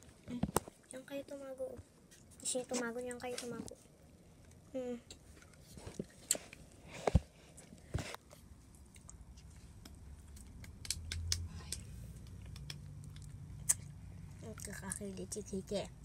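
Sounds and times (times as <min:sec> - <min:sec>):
kittens scratching and ticking: 0:05.2 - 0:15.8.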